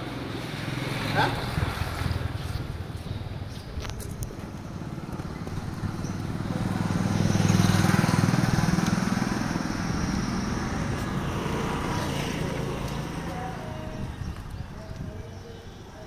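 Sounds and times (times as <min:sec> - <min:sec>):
small vehicle engine passing: 0:04.6 - 0:14.3.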